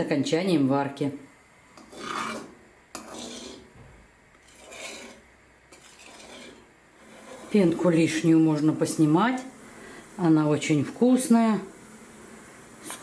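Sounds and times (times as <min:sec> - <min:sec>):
metal spoon scraping pot: 0:01.7 - 0:03.8, 0:04.4 - 0:08.2.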